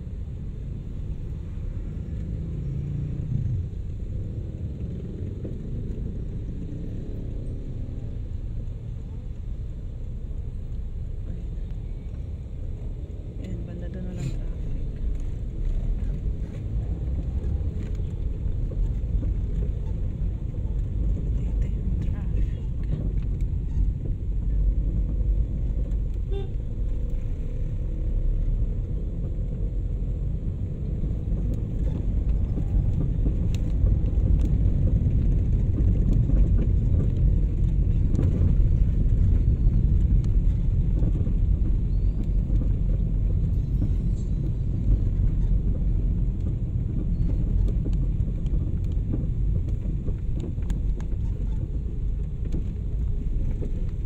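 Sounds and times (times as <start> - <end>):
car engine and road rumble: 0.0 - 54.0.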